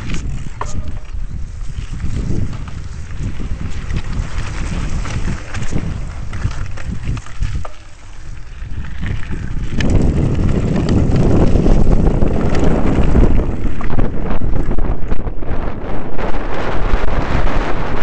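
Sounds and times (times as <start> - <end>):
rattling clicks from bike: 0.0 - 14.1
bike tyres crunching on gravel: 0.0 - 15.1
wind buffeting microphone: 0.0 - 18.0.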